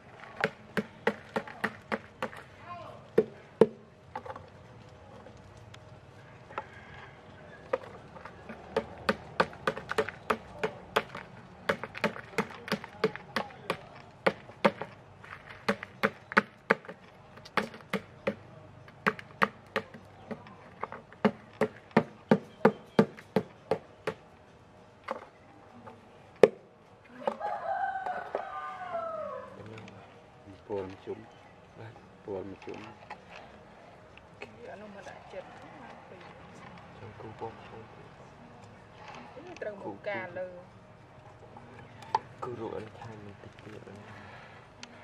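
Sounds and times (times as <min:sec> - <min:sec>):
rooster crowing: 0:06.2 - 0:07.7, 0:27.2 - 0:29.6
sharp knocks: 0:08.5 - 0:15.0, 0:15.6 - 0:20.5.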